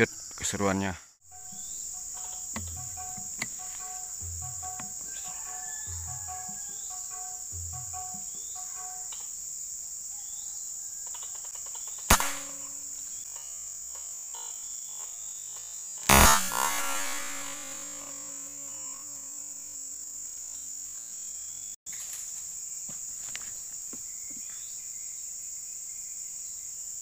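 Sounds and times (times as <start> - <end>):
insects droning: 0.0 - 27.0
air rifle shots: 12.1 - 13.0, 16.1 - 18.6.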